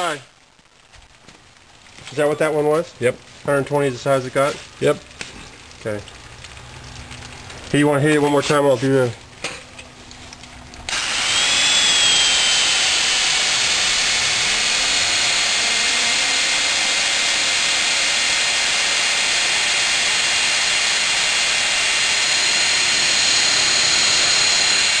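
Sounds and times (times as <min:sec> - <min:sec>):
heavy electric drill whining: 0:10.9 - 0:25.0.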